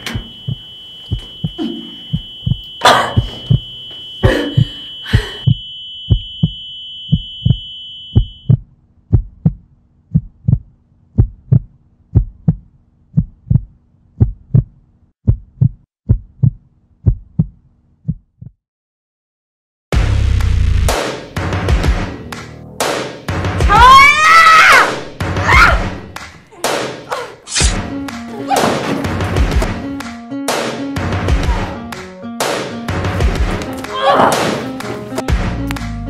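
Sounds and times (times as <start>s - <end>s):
high ringing tone: 0.0s - 8.6s
heartbeat thumps: 0.0s - 18.6s.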